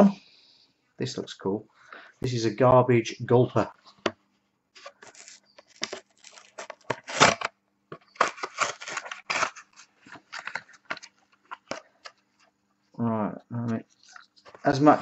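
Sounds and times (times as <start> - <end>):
plastic packaging crackling: 4.8 - 12.1.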